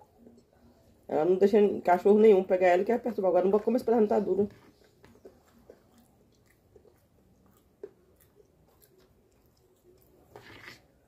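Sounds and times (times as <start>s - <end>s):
faint chewing of food: 0.0s - 1.1s, 3.5s - 11.0s.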